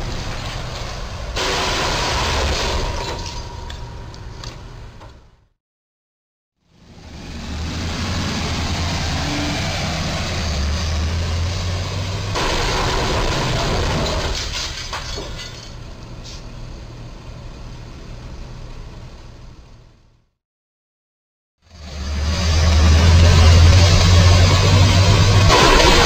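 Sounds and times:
truck crashing into beam: 1.4 - 4.0, 12.4 - 15.8, 25.3 - 26.0.

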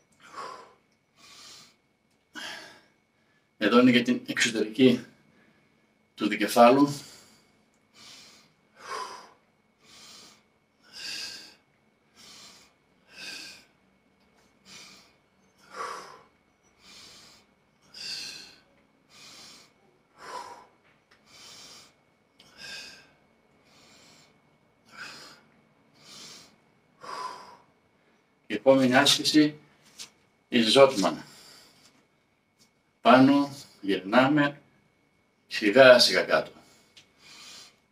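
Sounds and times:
man breathing forcefully: 0.2 - 1.8, 2.4 - 2.9, 7.0 - 13.8, 14.5 - 27.8, 36.6 - 37.8.

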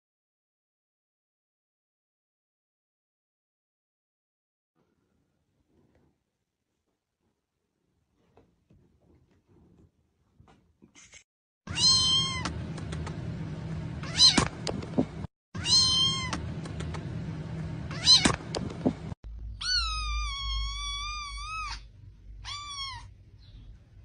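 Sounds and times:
kitten meowing: 11.7 - 12.5, 14.0 - 14.6, 15.6 - 16.4, 17.9 - 18.4, 19.5 - 23.1.

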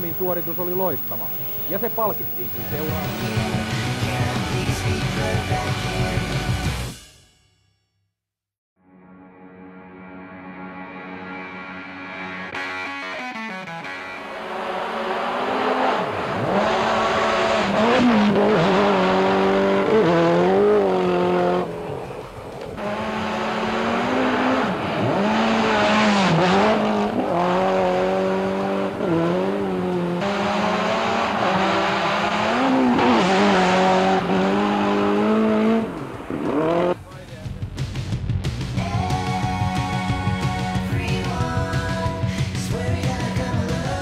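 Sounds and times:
rally car engine at full throttle: 0.0 - 6.7, 14.2 - 38.9.

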